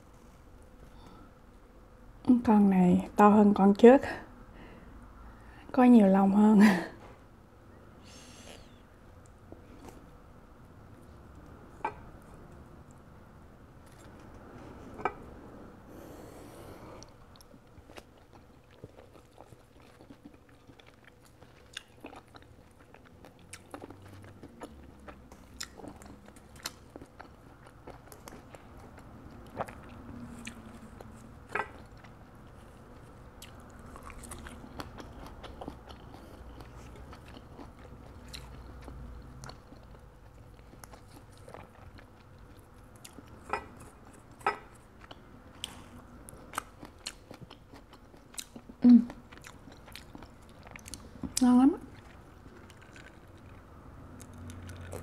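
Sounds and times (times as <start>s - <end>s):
close-up chewing with crunching: 17.0s - 55.0s.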